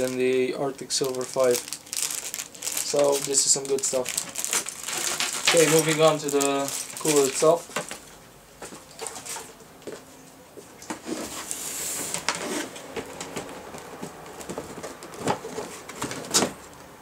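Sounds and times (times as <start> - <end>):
cardboard rubbing rustle: 0.9 - 7.6, 11.0 - 16.6.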